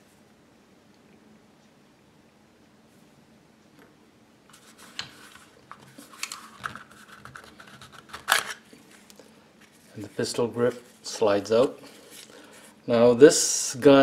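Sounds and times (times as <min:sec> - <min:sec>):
plastic clicks and scraping: 0:04.5 - 0:09.2.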